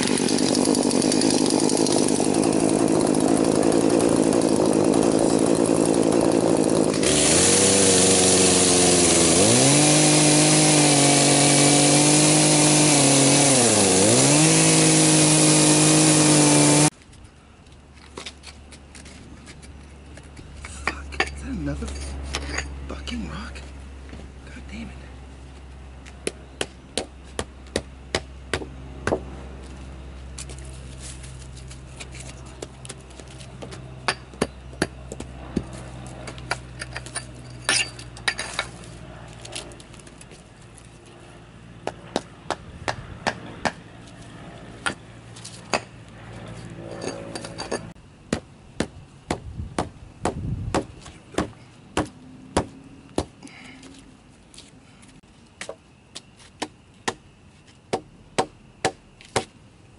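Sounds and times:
hatchet chopping wooden pole: 0:00.0 - 0:16.9, 0:26.2 - 0:29.3, 0:33.6 - 0:37.0, 0:41.8 - 0:43.8, 0:47.4 - 0:53.4, 0:56.6 - 0:57.2, 0:57.9 - 0:59.5.

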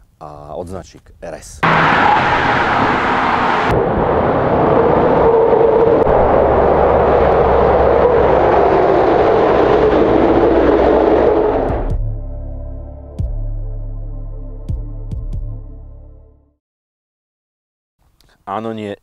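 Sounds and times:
tyres on wet road: 0:01.6 - 0:11.9
car engine running: 0:06.0 - 0:12.0.

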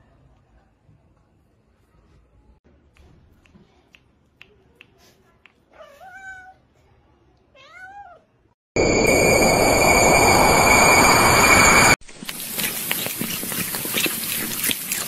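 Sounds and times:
rushing noise with whistling tones: 0:08.8 - 0:12.0.

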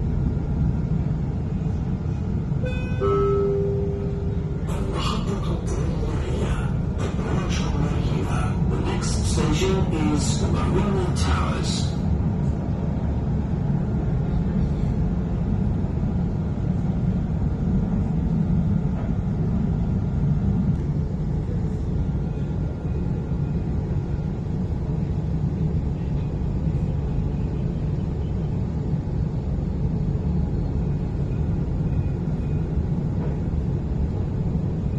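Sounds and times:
tram rumbling along track: 0:00.0 - 0:34.9.

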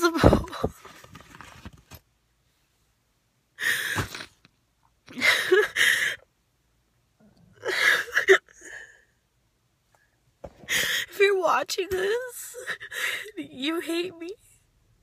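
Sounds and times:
woman sobbing: 0:00.0 - 0:00.8, 0:05.1 - 0:06.2, 0:07.6 - 0:09.1, 0:12.2 - 0:14.2.

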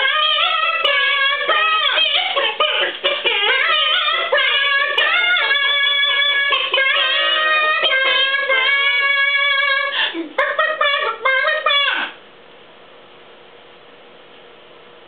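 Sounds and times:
group singing a cappella harmony: 0:00.0 - 0:09.9.

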